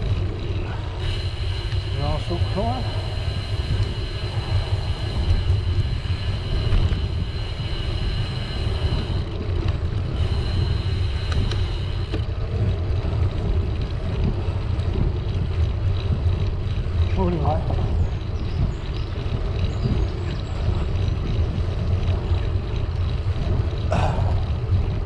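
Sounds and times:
thin high whine: 0:00.0 - 0:12.3
bicycle tyre noise on pavement: 0:00.0 - 0:25.0
wind buffeting microphone: 0:00.0 - 0:25.0.

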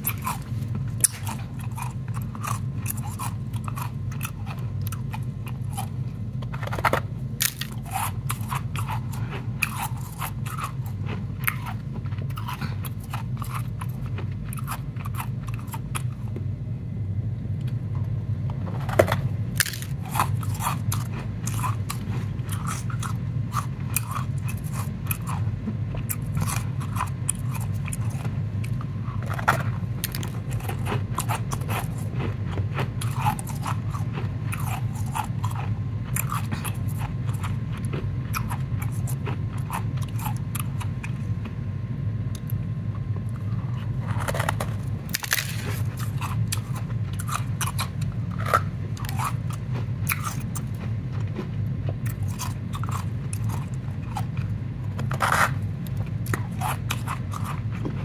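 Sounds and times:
steady low hum: 0:00.0 - 0:58.0
ice snapping: 0:19.6 - 0:20.0, 0:45.1 - 0:45.8.

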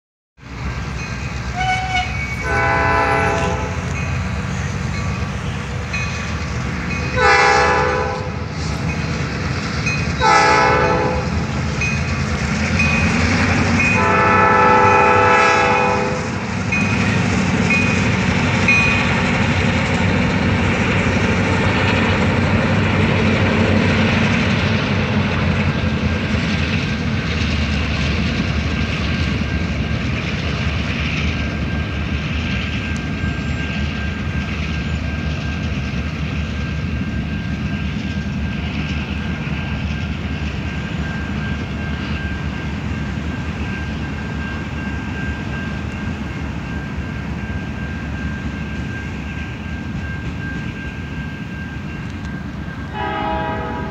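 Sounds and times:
freight train rumbling past: 0:00.4 - 0:53.9
train horn blasts: 0:01.5 - 0:04.0, 0:07.1 - 0:08.5, 0:10.2 - 0:11.6, 0:13.9 - 0:16.4, 0:52.9 - 0:53.9.

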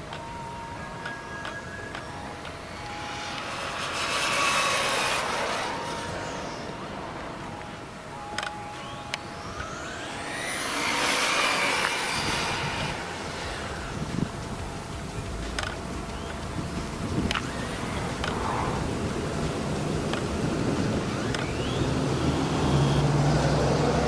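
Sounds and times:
rc car motor whining past: 0:00.7 - 0:24.0
short clicks: 0:08.3 - 0:09.7.

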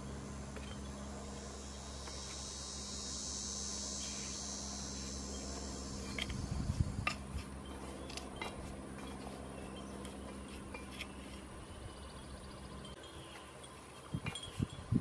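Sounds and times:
trowel scraping ceramic pot: 0:06.0 - 0:11.6.

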